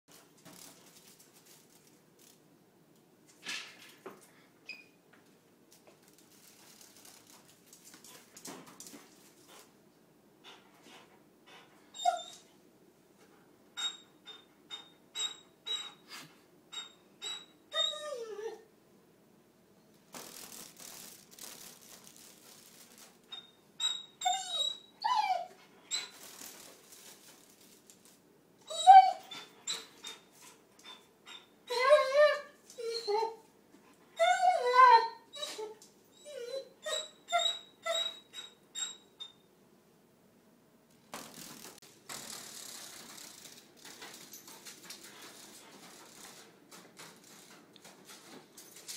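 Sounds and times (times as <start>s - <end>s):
dog claws clicking on tile: 5.7s - 9.7s, 41.2s - 48.9s
dog whining: 11.9s - 12.5s, 17.2s - 18.7s, 23.3s - 26.3s, 28.6s - 33.5s, 34.2s - 39.3s
high squeak: 13.8s - 16.0s, 23.3s - 26.3s, 36.4s - 39.4s.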